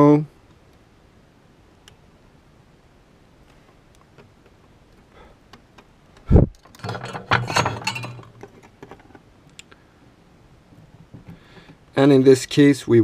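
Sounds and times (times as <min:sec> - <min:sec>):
light clinks and rattles of tools: 0:06.6 - 0:09.7.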